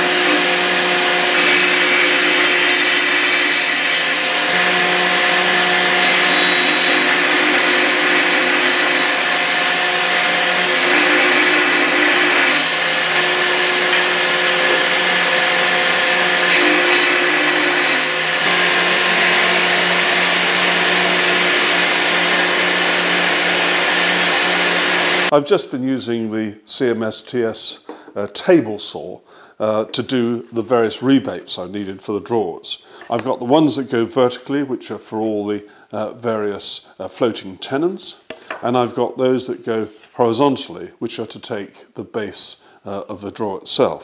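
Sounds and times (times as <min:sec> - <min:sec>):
table saw cutting: 0:00.0 - 0:25.3.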